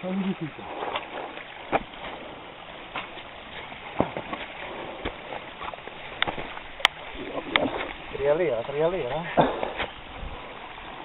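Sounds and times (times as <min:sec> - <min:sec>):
steady rushing noise: 0:00.6 - 0:11.0
dirt bike knocking on rocks: 0:03.9 - 0:04.4.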